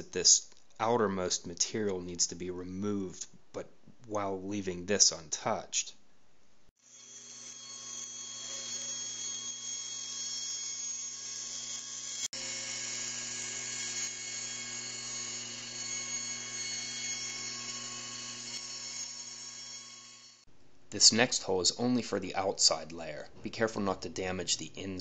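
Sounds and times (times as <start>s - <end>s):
bandsaw cutting plywood: 6.8s - 20.4s.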